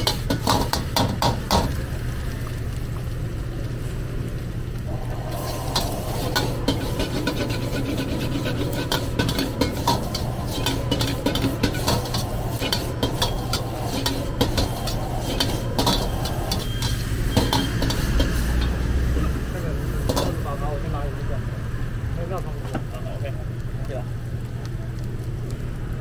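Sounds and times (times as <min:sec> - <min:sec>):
metal ladle scraping a wok: 0:00.0 - 0:01.7, 0:05.2 - 0:18.9, 0:20.0 - 0:20.4.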